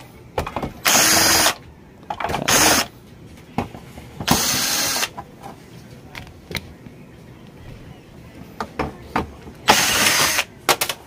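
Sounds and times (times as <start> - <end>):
electric screwdriver running: 0.9 - 1.6, 2.5 - 2.9, 4.3 - 5.1, 9.7 - 10.5.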